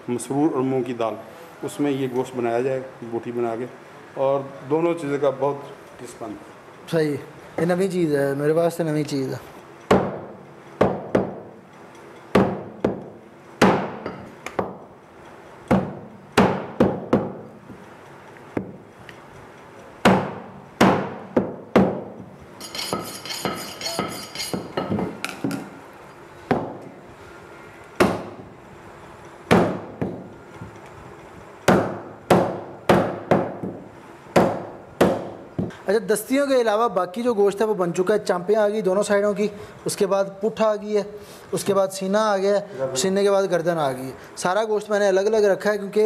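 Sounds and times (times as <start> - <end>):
cleaver chopping meat and bone: 12.4 - 14.8, 15.7 - 17.4, 20.0 - 22.1, 28.0 - 28.3, 29.5 - 30.2, 31.7 - 33.8, 34.4 - 35.7
knife scraping on honing steel: 22.6 - 24.8.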